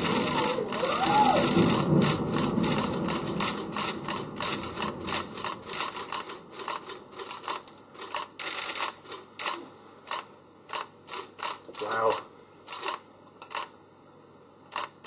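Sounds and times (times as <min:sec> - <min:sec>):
building collapse rumble: 0:00.0 - 0:07.4
crisp clicks and rasps: 0:00.0 - 0:13.7.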